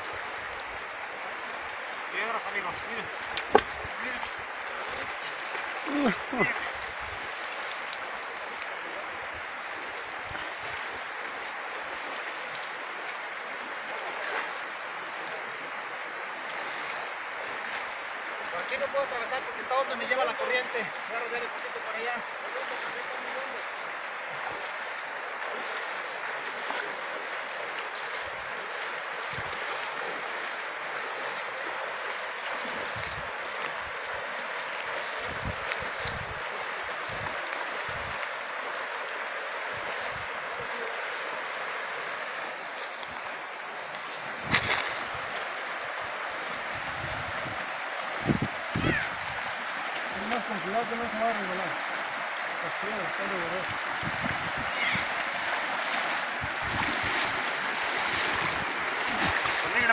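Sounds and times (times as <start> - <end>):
river current rushing: 0.0 - 59.9
wind bumps on microphone: 35.2 - 36.4, 44.4 - 45.3, 46.7 - 49.5, 53.7 - 55.1, 56.4 - 57.4.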